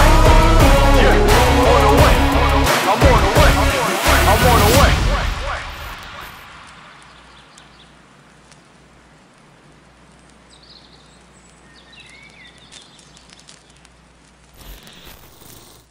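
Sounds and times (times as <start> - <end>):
music: 0.0 - 5.9
faint steady hiss: 5.2 - 15.6.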